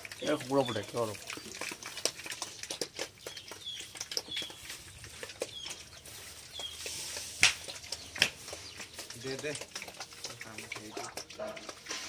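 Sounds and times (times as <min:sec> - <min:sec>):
pigs chewing: 0:00.0 - 0:12.0
rustling straw: 0:06.0 - 0:07.6.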